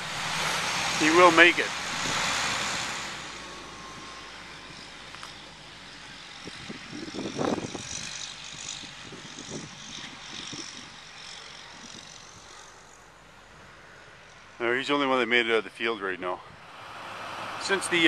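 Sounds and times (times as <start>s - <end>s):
rushes of noise: 0.0s - 5.4s
diesel truck engine droning: 0.0s - 18.0s.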